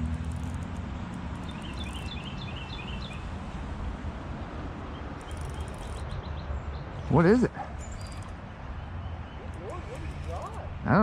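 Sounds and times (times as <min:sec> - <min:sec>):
small bird chirping: 0:00.3 - 0:03.4, 0:04.8 - 0:10.8.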